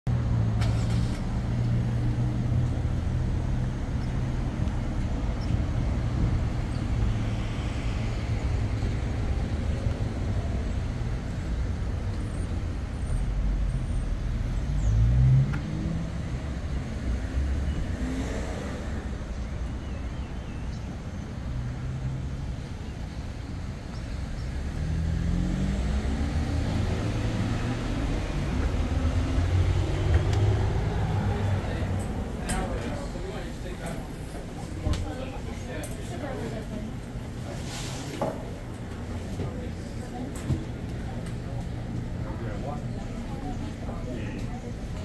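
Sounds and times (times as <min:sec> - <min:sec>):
traffic rumble: 0:00.1 - 0:45.0
car passing: 0:13.0 - 0:19.8, 0:24.3 - 0:45.0
vehicle accelerating past: 0:13.6 - 0:19.4, 0:24.5 - 0:33.6.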